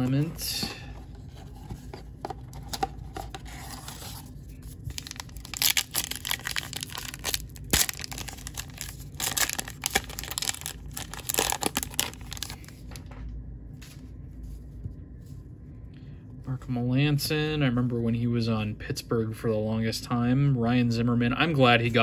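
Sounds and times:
card pack wrapper ripping: 0:04.9 - 0:12.9
wrapper sharp crack: 0:05.0 - 0:12.6.

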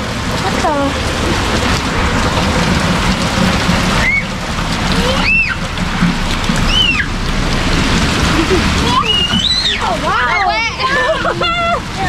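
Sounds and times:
heavy rain: 0:00.0 - 0:12.0
high-pitched squeals: 0:08.9 - 0:10.0.

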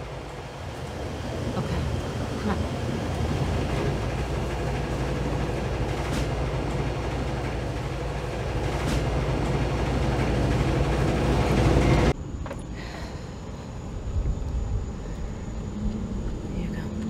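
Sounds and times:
washing machine tumbling: 0:00.0 - 0:12.2.

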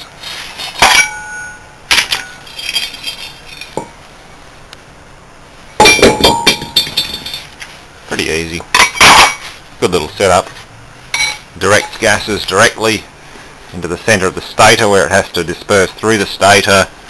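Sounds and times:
metal parts clinking: 0:00.7 - 0:03.9, 0:05.8 - 0:07.6.

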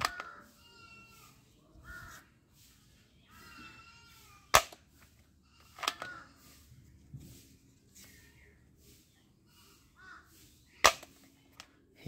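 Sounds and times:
crow cawing: 0:00.0 - 0:00.6, 0:01.8 - 0:02.3, 0:05.9 - 0:06.6, 0:10.0 - 0:10.4
toy rifle firing snap: 0:04.5 - 0:04.8, 0:10.8 - 0:11.2.

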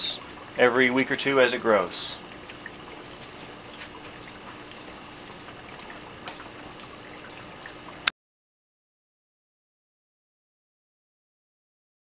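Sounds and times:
aquarium water trickling: 0:00.0 - 0:08.1
water droplet ticks: 0:02.4 - 0:08.1.

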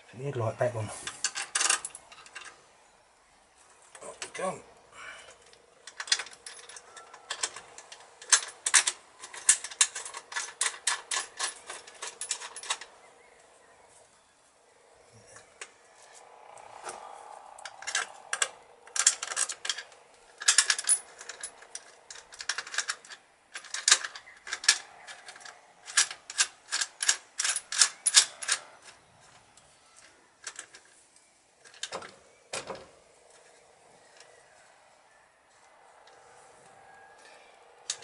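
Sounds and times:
metallic clicks and rattles: 0:01.1 - 0:02.6, 0:05.3 - 0:13.0, 0:15.3 - 0:31.0, 0:31.6 - 0:34.4, 0:37.5 - 0:38.0.

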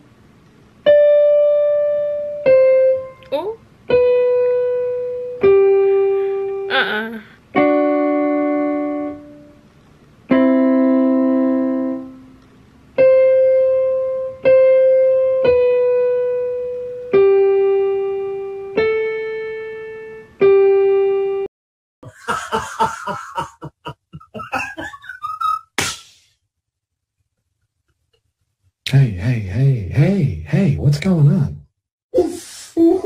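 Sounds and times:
electronic keyboard piano notes: 0:13.0 - 0:21.5.

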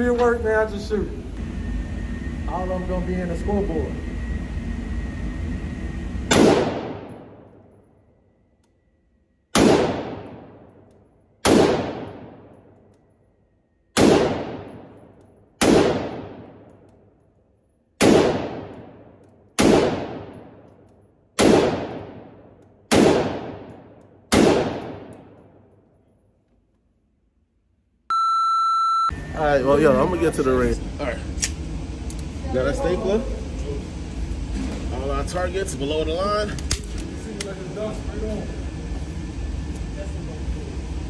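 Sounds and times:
rifle shots ringing indoors: 0:06.3 - 0:26.4.

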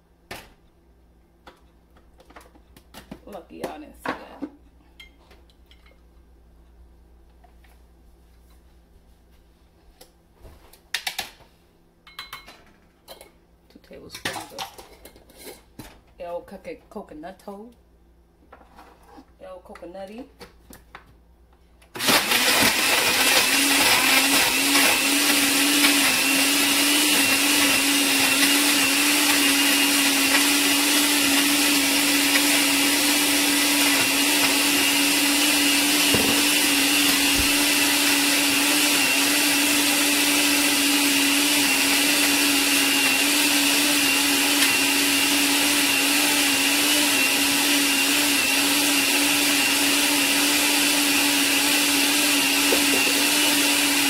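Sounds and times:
blender running: 0:22.0 - 0:54.0.

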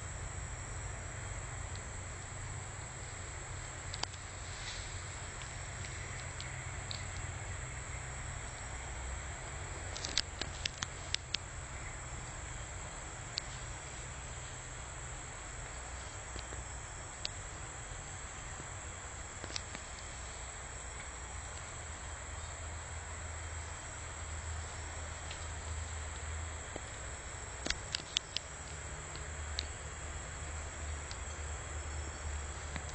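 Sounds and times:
insect drone: 0:00.0 - 0:32.9
sharp clicks: 0:09.9 - 0:11.5, 0:27.6 - 0:29.8.

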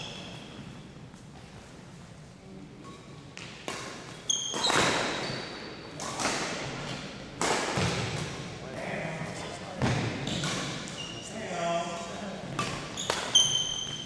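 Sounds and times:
sneaker squeak on floor: 0:00.0 - 0:00.8, 0:04.3 - 0:05.8, 0:10.2 - 0:11.3, 0:12.6 - 0:14.0
racket hitting shuttlecock: 0:03.4 - 0:05.2, 0:06.0 - 0:08.5, 0:12.5 - 0:14.0.

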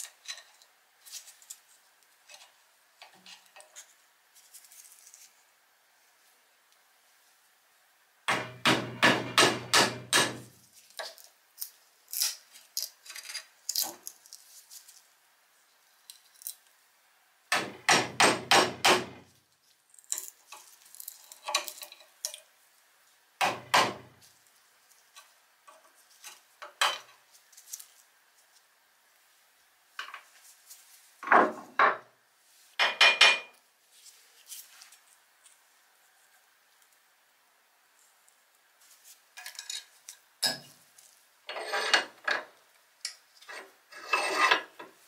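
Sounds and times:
clicks and scrapes: 0:43.1 - 0:45.0.

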